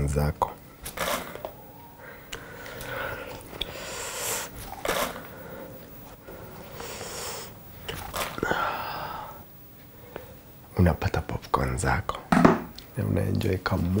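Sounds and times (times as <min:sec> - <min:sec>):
breathing and mouth noises: 0:00.8 - 0:10.5.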